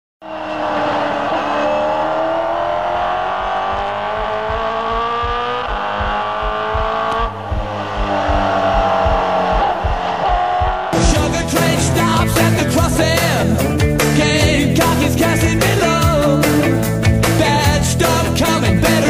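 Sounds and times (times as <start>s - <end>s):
race car engine accelerating: 0.2s - 11.0s
low drum beat: 3.7s - 16.4s.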